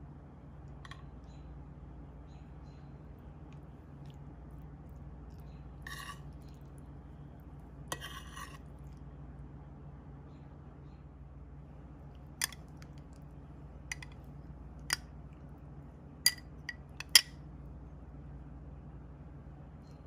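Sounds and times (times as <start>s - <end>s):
metal spoon clinking on glass: 16.3s - 17.3s.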